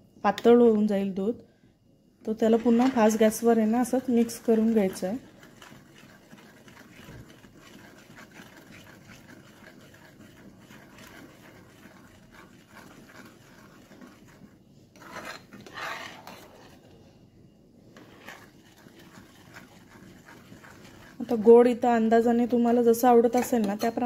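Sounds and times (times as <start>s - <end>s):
spoon scraping steel pan: 12.8s - 16.9s, 18.0s - 21.5s, 23.2s - 24.0s.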